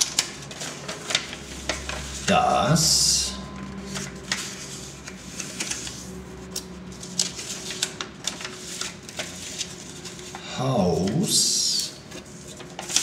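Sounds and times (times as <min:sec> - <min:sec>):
paper being folded and creased: 0:00.0 - 0:13.0.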